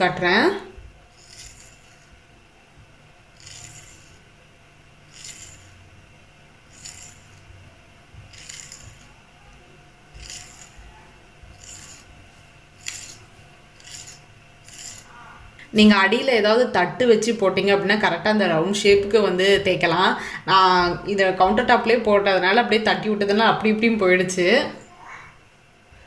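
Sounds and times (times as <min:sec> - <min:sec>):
knife scraping stone countertop: 0:01.1 - 0:02.2, 0:03.4 - 0:04.2, 0:05.1 - 0:05.8, 0:06.7 - 0:07.4, 0:08.3 - 0:09.2, 0:10.1 - 0:10.9, 0:11.5 - 0:12.1, 0:12.8 - 0:15.2.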